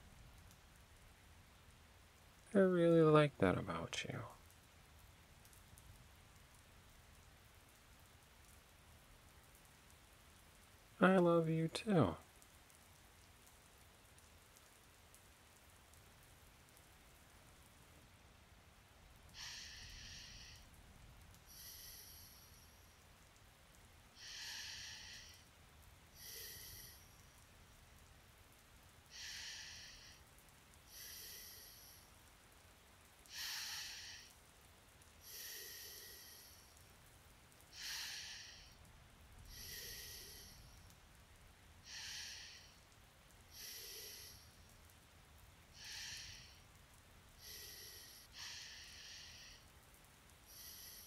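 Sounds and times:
man breathing heavily in sleep: 19.3 - 20.7, 21.5 - 23.0, 24.2 - 25.6, 26.2 - 27.4, 29.1 - 30.3, 30.9 - 32.2, 33.2 - 34.4, 35.2 - 36.8, 37.6 - 38.8, 39.4 - 40.9, 41.8 - 42.9, 43.5 - 44.7, 45.7 - 46.8, 47.4 - 49.7, 50.5 - 51.0.

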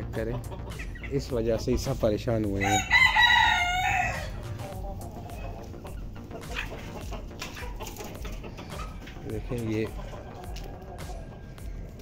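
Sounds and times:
chickens clucking: 0.0 - 12.0
rooster crowing: 2.6 - 4.4.

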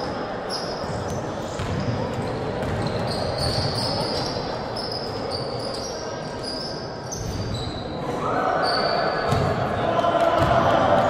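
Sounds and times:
sneakers squeaking on court: 0.5 - 8.0, 8.6 - 9.6
basketball bouncing: 1.6 - 3.8, 9.3 - 9.5.

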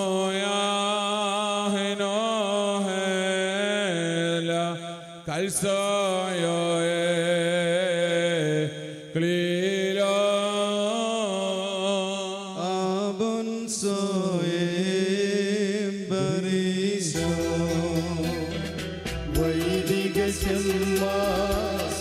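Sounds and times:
solo voice chanting a hymn: 0.0 - 18.7, 19.3 - 22.0
instrumental accompaniment with bass: 17.2 - 22.0.

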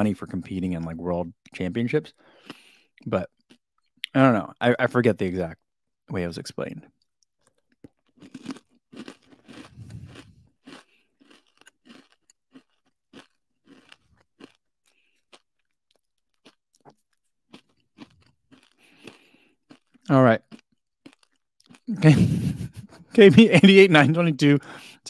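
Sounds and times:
crunching and chewing: 2.4 - 4.0, 6.9 - 22.0.

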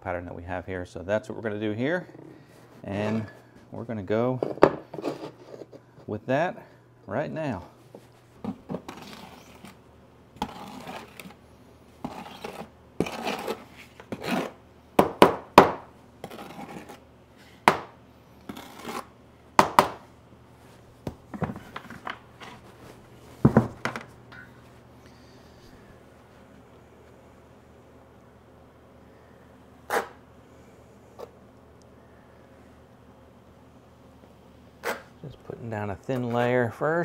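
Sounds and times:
trowel scraping mortar: 8.7 - 9.8, 10.4 - 11.4, 12.0 - 14.6, 16.2 - 17.0, 18.5 - 19.1.

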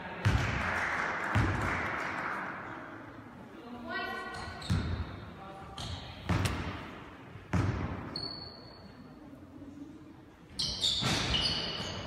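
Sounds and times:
basketball bouncing in a hall: 0.0 - 2.8, 4.2 - 9.0, 10.5 - 12.0
shoes squeaking on court: 4.3 - 5.1, 8.0 - 9.0, 10.5 - 12.0.

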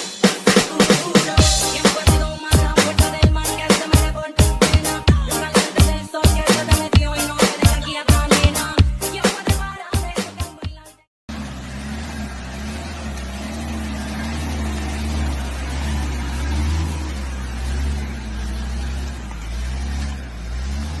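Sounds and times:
diesel truck engine under load: 11.3 - 21.0.

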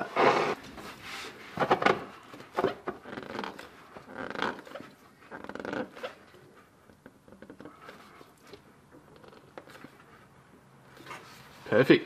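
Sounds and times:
rubbing and scraping: 0.0 - 6.7
hands twisting oil filter: 2.3 - 10.1.

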